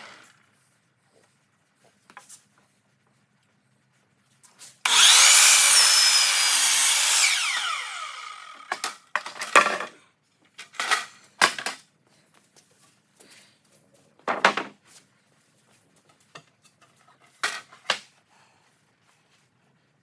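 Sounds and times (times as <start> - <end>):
miter saw cutting wood: 4.8 - 9.1
saw blade winding down: 4.8 - 9.1.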